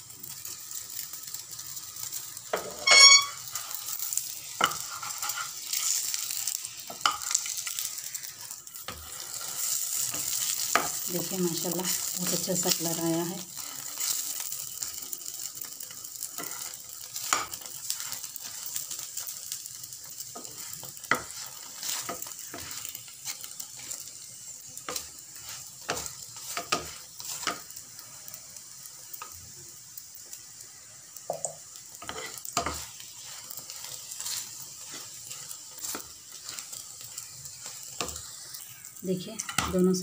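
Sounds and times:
flatbread sizzling in oil: 0.0 - 40.0
spatula tapping a pan: 4.6 - 5.4, 6.9 - 7.6, 10.1 - 11.1, 20.3 - 23.4, 25.8 - 27.7, 31.2 - 32.9.

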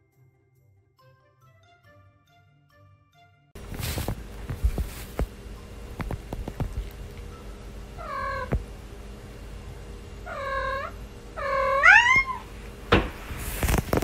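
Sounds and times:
kitten meowing: 10.3 - 12.5.

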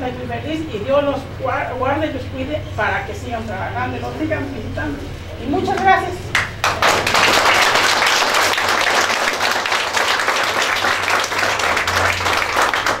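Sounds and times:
crowd applauding: 6.3 - 13.0.

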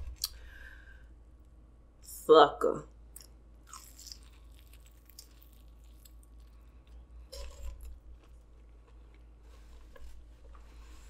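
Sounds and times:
chewing crunchy food: 3.2 - 10.0.

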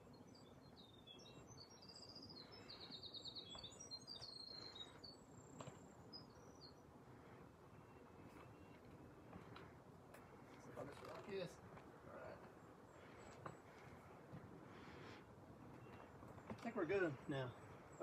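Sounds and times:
songbird singing with trills: 0.0 - 7.0
quiet forest ambience: 0.0 - 18.0.

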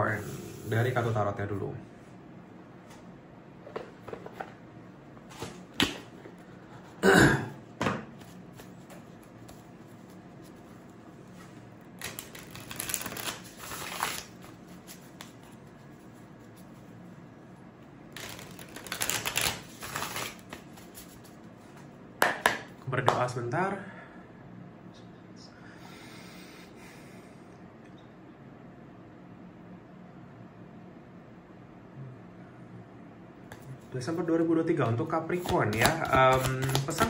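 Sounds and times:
cards being riffle-shuffled: 8.2 - 10.7, 12.0 - 16.9, 18.1 - 21.4, 35.4 - 37.0.

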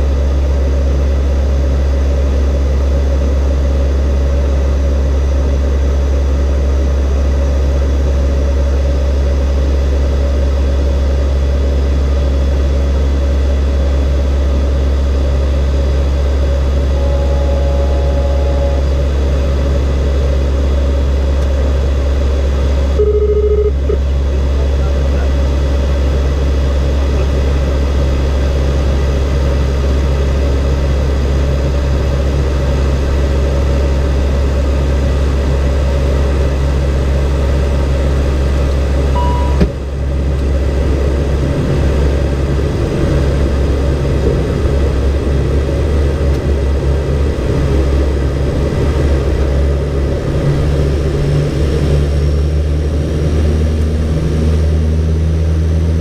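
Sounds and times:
turboprop engine drone: 0.0 - 56.0
short beep: 16.9 - 18.9, 23.0 - 24.0, 39.2 - 39.8.

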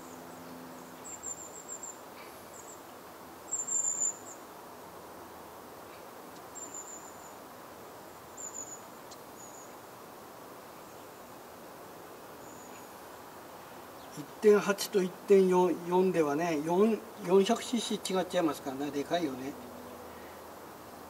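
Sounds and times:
insect chirping trills: 0.0 - 4.5, 6.3 - 9.9, 12.4 - 16.0
steady hiss: 0.0 - 21.0.

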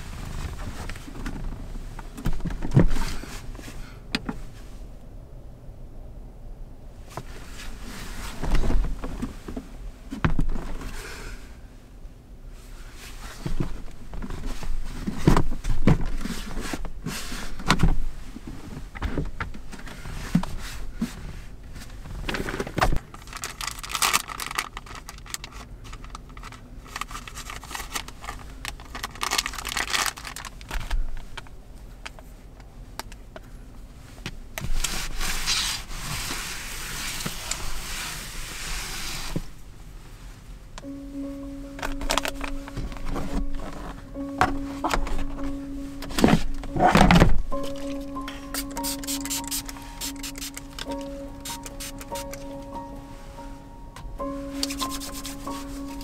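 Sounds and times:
rustling and scraping: 0.0 - 4.8, 7.1 - 11.2, 12.6 - 31.5, 34.0 - 40.5, 41.7 - 50.2, 54.3 - 56.0.

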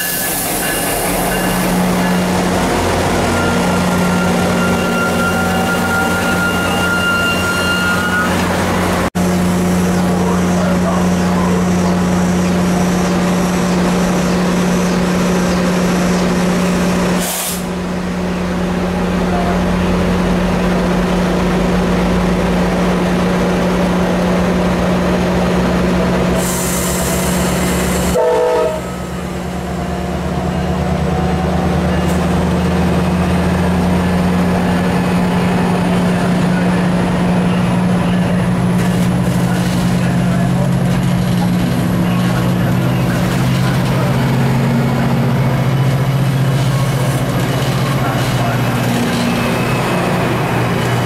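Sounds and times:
train engine drone: 0.0 - 51.0
hiss burst: 17.2 - 17.7.

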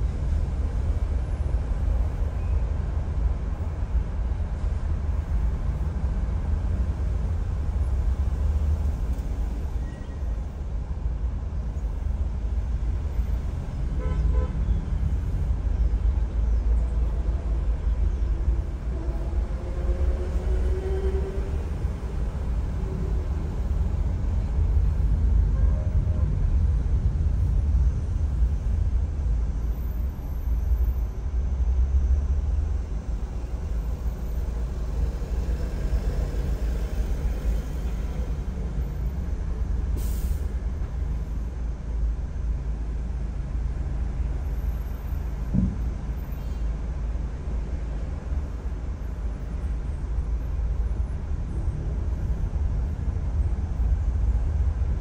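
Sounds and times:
car driving on highway: 0.0 - 55.0.

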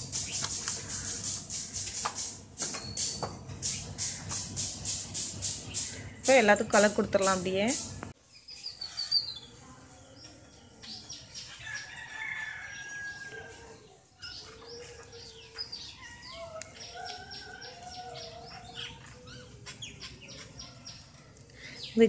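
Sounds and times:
rooster crowing: 11.6 - 13.8.

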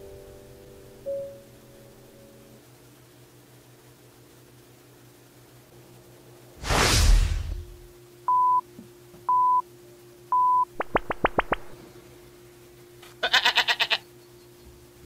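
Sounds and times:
faint steady hum: 0.0 - 15.0
rising chirps: 10.8 - 12.1.

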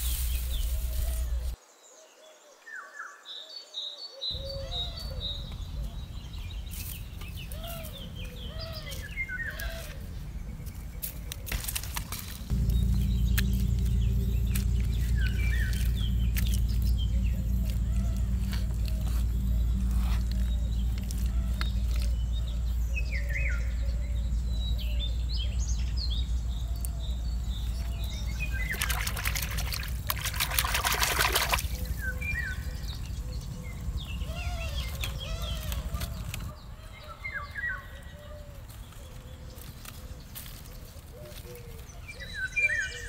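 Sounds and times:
birds chirping: 0.0 - 43.0
low steady rumble: 12.4 - 36.6
hands splashing in wet mud: 28.5 - 32.3.

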